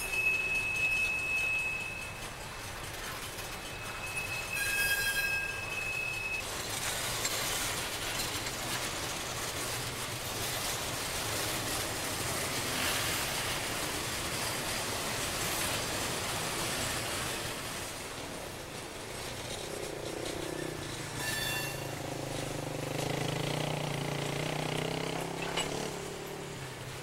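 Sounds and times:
high wheel squeal: 0.0 - 6.5, 19.5 - 22.7
freight cars rolling past: 0.0 - 27.0.

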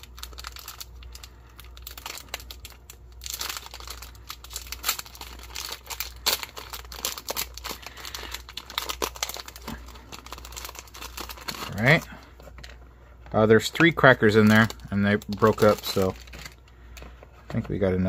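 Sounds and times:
foil wrapper crinkling and tearing: 0.0 - 18.0.

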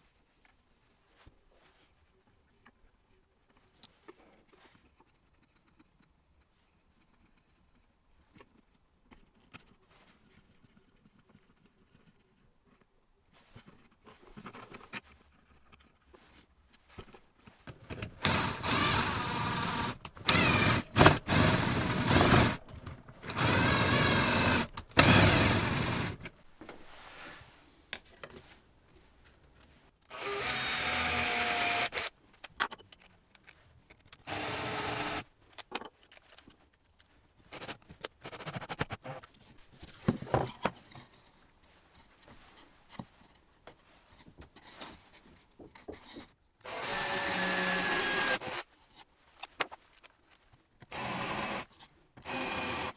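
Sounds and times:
impact driver driving screws: 18.1 - 26.2.

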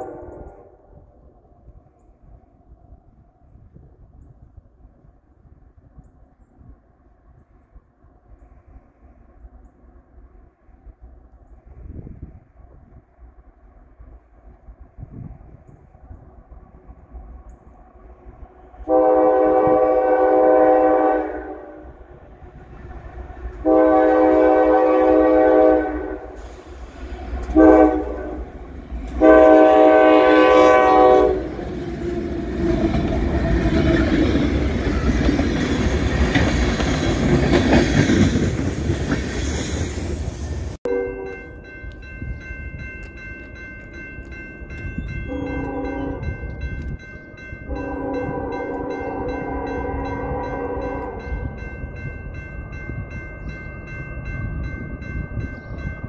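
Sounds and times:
locomotive air horn: 0.0 - 0.9, 18.9 - 21.9, 23.6 - 28.6, 29.2 - 31.6, 40.9 - 41.6, 45.3 - 46.3, 47.7 - 51.6
train wheels rumbling on rail: 1.3 - 56.0.

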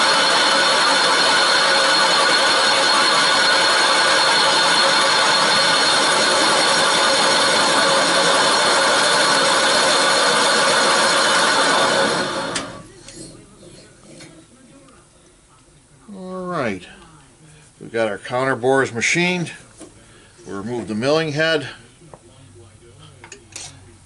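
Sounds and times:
machine spindle whining: 0.0 - 13.3.

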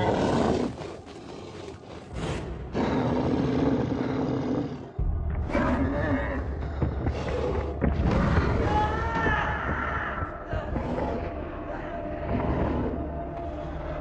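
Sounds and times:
deep rumble: 4.8 - 14.0
dramatic music: 4.9 - 14.0.

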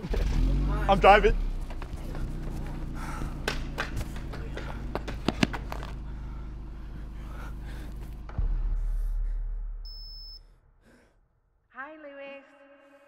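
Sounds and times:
steady low hum: 0.5 - 11.4
sharp taps and knocks: 3.4 - 5.9.

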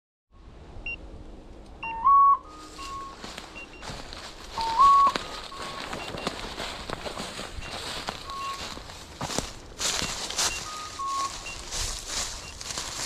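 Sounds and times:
beeper collar two-note tone: 1.8 - 4.0, 10.0 - 11.8
footsteps crunching dry leaves: 2.6 - 13.0.

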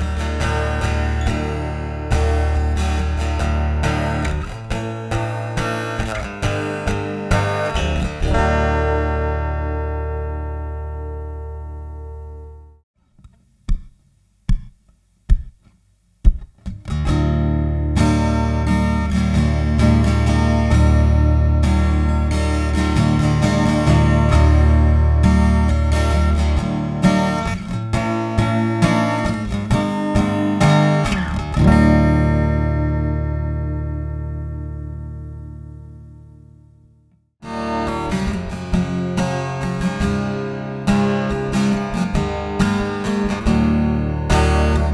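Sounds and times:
strummed acoustic guitar chords: 0.0 - 12.8, 13.7 - 44.9
percussive guitar hits: 13.7 - 17.2.

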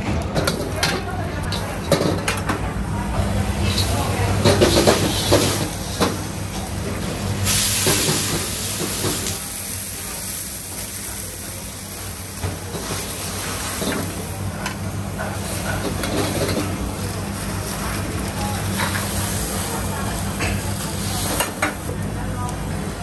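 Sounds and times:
low mechanical hum: 0.0 - 23.0
loud hiss: 7.4 - 10.8.

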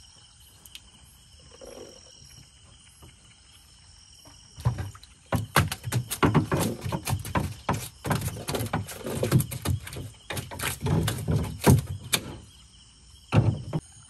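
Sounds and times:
fish flapping in shallow water: 4.6 - 12.2.

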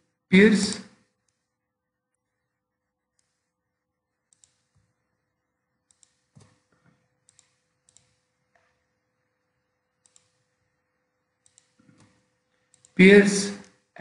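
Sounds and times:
faint electrical hum: 0.0 - 14.0
computer mouse clicks: 1.2 - 1.5, 3.1 - 3.5, 4.3 - 5.0, 5.8 - 8.8, 10.0 - 10.5, 11.4 - 13.0.

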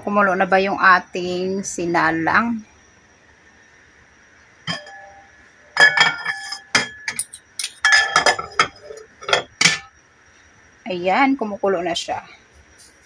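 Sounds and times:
stainless steel cookware clinking: 4.7 - 5.2, 5.8 - 9.9.

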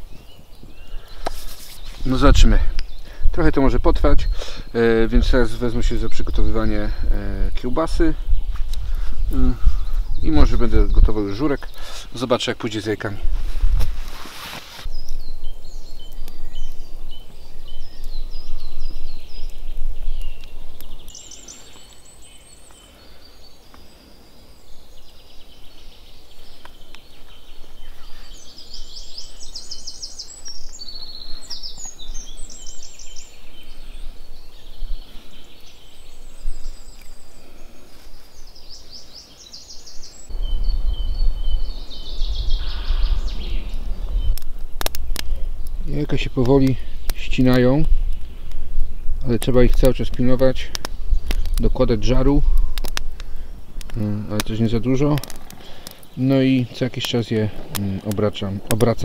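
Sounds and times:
songbirds trilling and chirping: 0.0 - 59.0
low rumbling noise: 40.3 - 46.1.

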